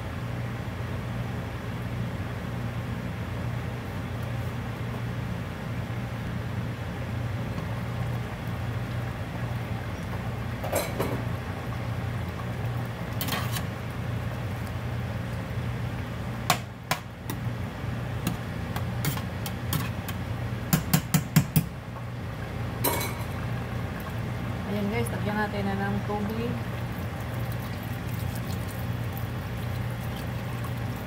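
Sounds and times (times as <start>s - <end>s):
steady low hum: 0.0s - 31.0s
spoon tapping on a pot: 20.7s - 21.7s.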